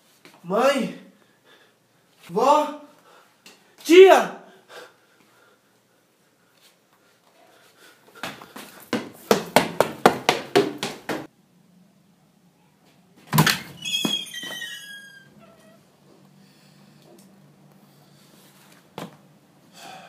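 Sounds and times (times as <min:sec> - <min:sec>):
door hinges creaking: 0:13.4 - 0:15.8.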